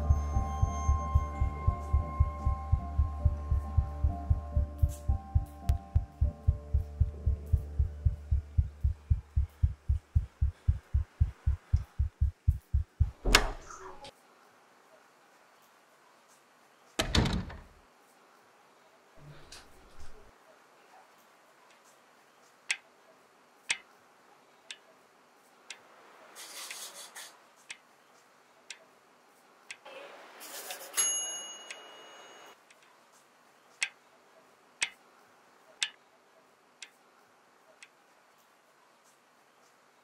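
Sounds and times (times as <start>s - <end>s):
thin high tone: 0.0s - 5.7s
wall clock ticking: 0.4s - 13.2s.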